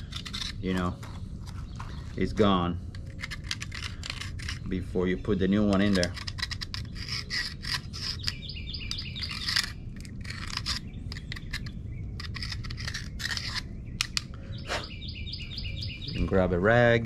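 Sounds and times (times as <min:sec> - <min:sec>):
knife scraping metal: 0:00.0 - 0:02.0, 0:02.9 - 0:04.8, 0:05.7 - 0:14.2
bird chirping: 0:00.0 - 0:17.0.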